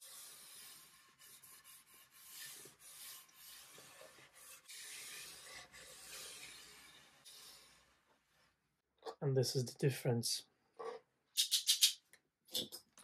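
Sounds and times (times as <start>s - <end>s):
gloved hand rubbing wood: 0.1s - 8.5s.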